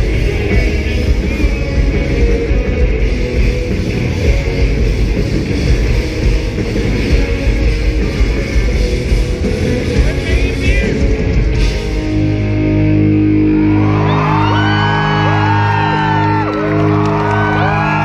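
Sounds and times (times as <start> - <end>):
pop-punk band playing: 0.0 - 18.0
crowd shouting and whooping: 13.1 - 18.0.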